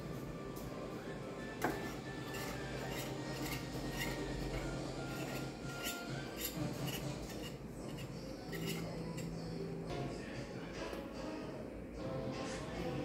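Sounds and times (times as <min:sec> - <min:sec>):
wire whisk beating in bowl: 0:01.6 - 0:09.3.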